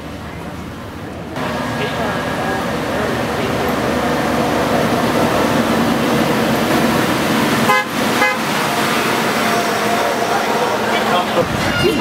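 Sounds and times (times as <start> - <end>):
tram rumbling past: 0.0 - 12.0
short tram horn toots: 7.7 - 8.6.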